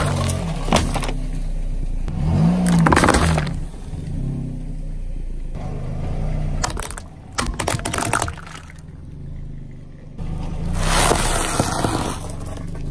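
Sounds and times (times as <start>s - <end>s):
plastic cups cracking under tyre: 0.0s - 1.2s, 2.6s - 3.7s, 6.6s - 9.0s, 10.8s - 12.9s
car engine humming: 0.0s - 12.9s
tyre crunching bag of candy: 2.6s - 3.6s, 6.6s - 8.8s.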